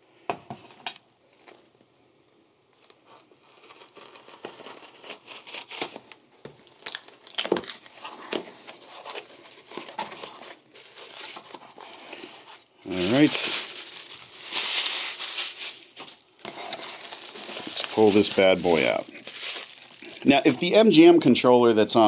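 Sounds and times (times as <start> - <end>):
paper crinkling: 2.8 - 21.2
knife tearing packing tape: 3.6 - 8.0.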